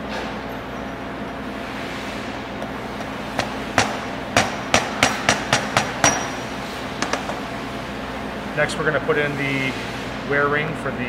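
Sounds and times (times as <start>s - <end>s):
low machine-shop hum: 0.0s - 11.0s
mallet tapping metal: 3.4s - 6.4s.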